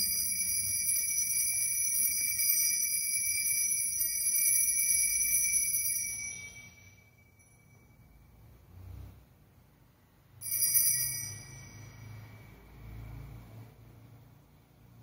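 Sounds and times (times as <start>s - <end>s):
altar bells jingling: 0.0s - 8.4s, 10.4s - 12.8s.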